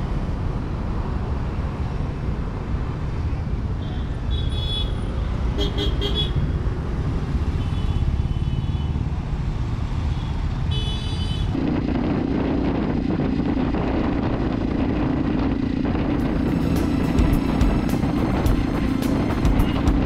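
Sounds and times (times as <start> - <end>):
road and wind noise: 0.0 - 20.0
street traffic rumbling: 0.0 - 20.0
motorcycle engine running: 11.6 - 20.0.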